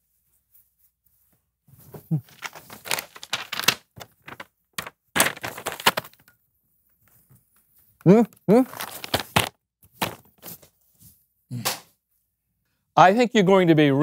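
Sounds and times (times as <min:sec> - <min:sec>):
stiff paper rustling and crinkling: 0:01.8 - 0:06.2, 0:08.5 - 0:10.7.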